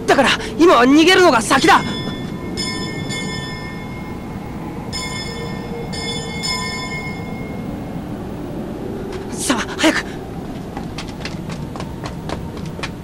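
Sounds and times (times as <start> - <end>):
rushing wind-like ambience: 0.0 - 13.0
high ringing tones: 1.2 - 8.5.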